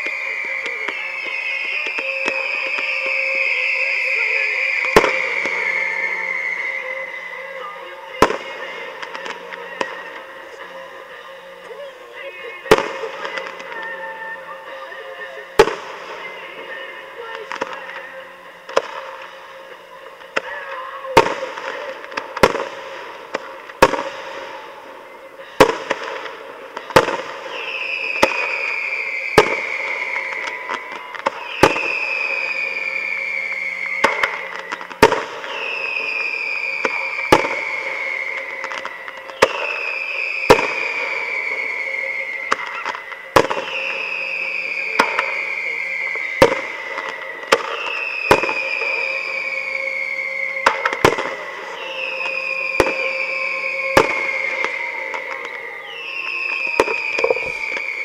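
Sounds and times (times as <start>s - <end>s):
high falling whistle: 0.0s - 19.8s, 26.8s - 58.0s
fireworks bursting: 0.0s - 58.0s.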